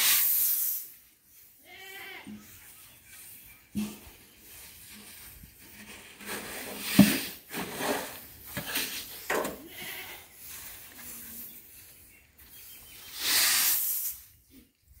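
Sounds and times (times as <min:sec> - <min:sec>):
grain pouring hiss: 0:00.0 - 0:01.6, 0:05.8 - 0:08.3, 0:13.1 - 0:14.3
rice scraped with metal scoop: 0:05.7 - 0:09.2.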